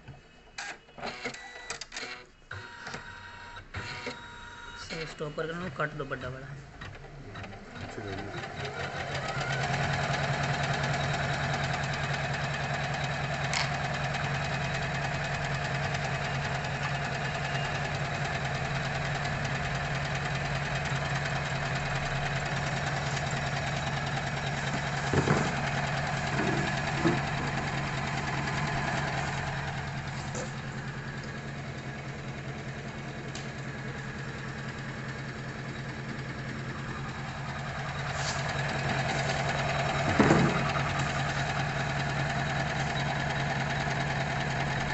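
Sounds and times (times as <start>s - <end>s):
embroidery machine stitching: 3.8s - 44.9s
machine clacks: 37.9s - 44.9s.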